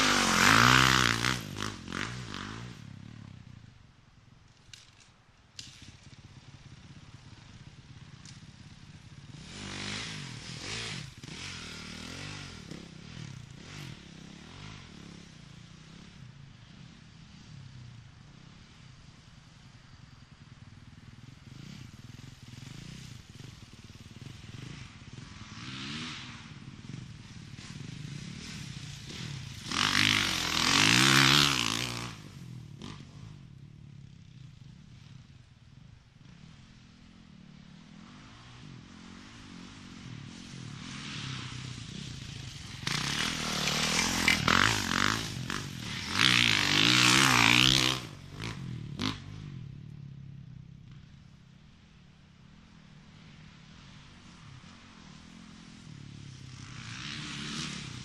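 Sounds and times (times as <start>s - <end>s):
dirt bikes revving past: 0.0s - 3.8s, 4.8s - 58.0s.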